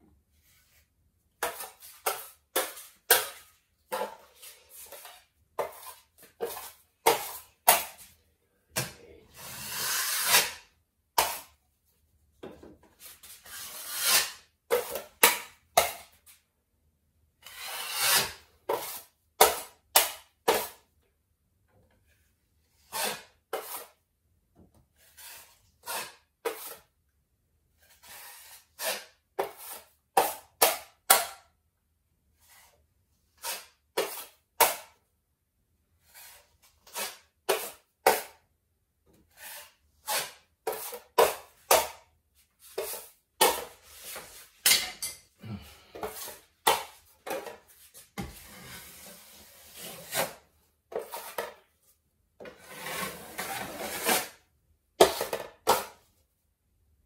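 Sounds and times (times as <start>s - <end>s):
putty knife scraping a metal pan: 17.4s - 20.8s, 22.8s - 24.0s, 25.1s - 26.9s, 27.9s - 30.9s, 36.0s - 38.4s, 39.2s - 42.0s, 46.0s - 51.6s, 52.4s - 54.4s.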